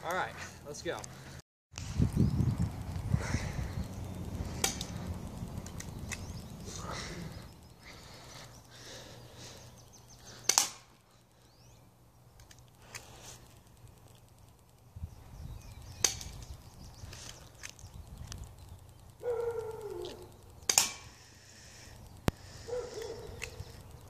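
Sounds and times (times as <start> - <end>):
airsoft pistol cracks: 4.5 - 5.0, 10.4 - 11.0, 16.0 - 16.4, 19.6 - 21.2, 22.3 - 23.7.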